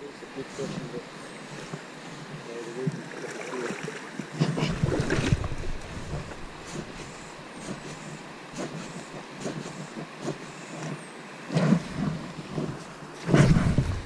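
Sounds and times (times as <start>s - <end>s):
river water running over stones: 2.9s - 7.1s
wind buffeting microphone: 4.3s - 11.0s, 11.8s - 14.0s.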